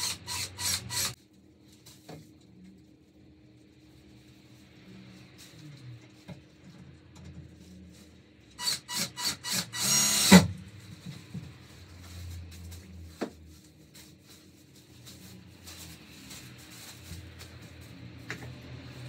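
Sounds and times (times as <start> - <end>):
cordless drill whirring: 0.0 - 1.2, 8.6 - 10.5.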